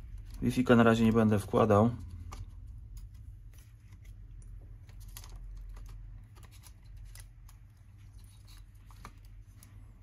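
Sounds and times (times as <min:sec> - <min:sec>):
low steady hum: 0:00.0 - 0:10.0
small laptop parts clicking: 0:02.0 - 0:09.8.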